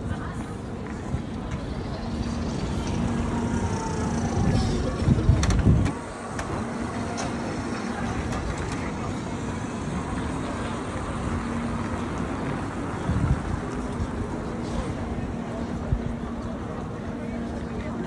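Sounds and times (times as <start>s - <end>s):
vans driving past: 0.5s - 17.4s.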